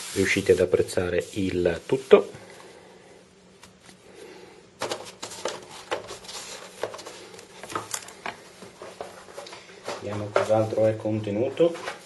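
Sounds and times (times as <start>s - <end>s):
paper rustling and crinkling: 4.8s - 8.0s.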